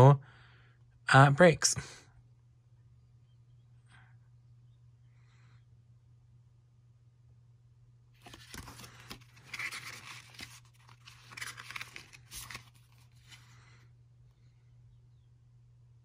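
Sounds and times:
diary pages flipping: 8.2s - 13.6s.

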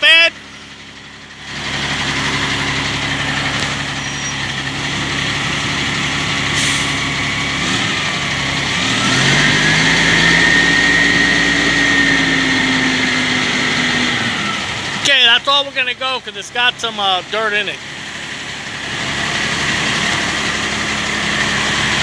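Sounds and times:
truck diesel engine running: 0.0s - 22.0s
high whine: 2.0s - 5.5s, 9.0s - 15.4s.

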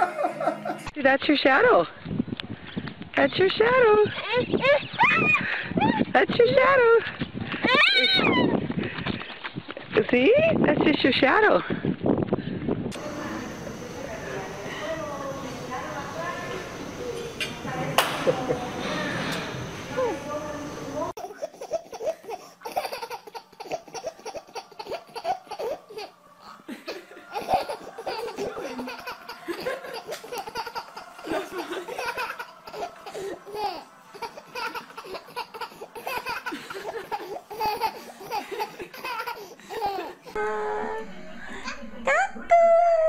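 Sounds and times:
infant laughing: 21.2s - 40.4s.

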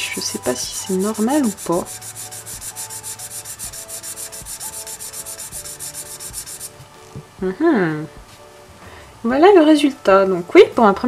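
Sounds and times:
marker scratching across paper: 0.4s - 6.8s.

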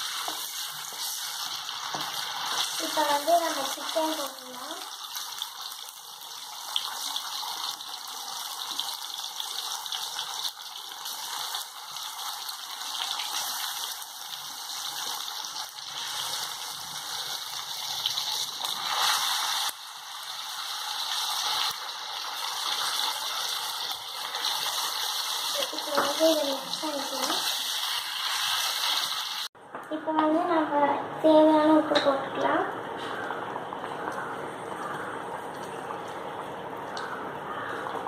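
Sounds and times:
oil sizzling in a pot: 0.0s - 29.6s.

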